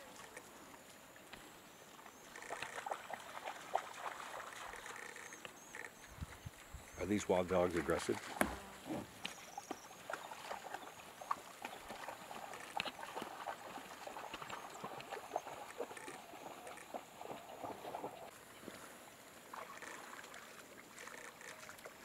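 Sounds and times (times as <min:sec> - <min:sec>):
paws splashing in water: 0:00.0 - 0:22.0
wild dogs chirping: 0:14.1 - 0:18.3.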